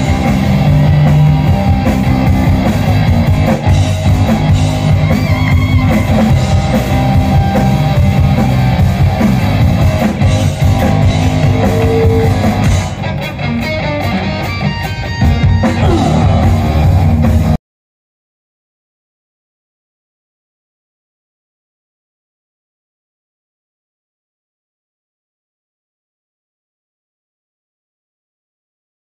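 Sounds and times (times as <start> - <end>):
bass guitar: 0.0 - 17.6
drum kit: 0.0 - 17.6
electric guitar: 0.0 - 17.6.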